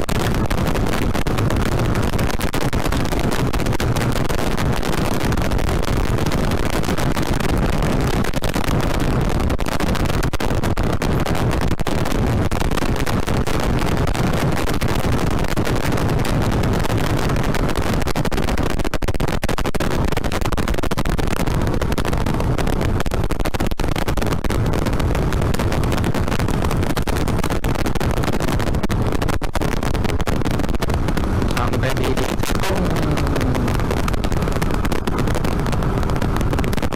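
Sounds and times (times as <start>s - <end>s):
wind rushing over microphone: 0.0s - 36.9s
motorcycle engine running: 30.9s - 36.7s.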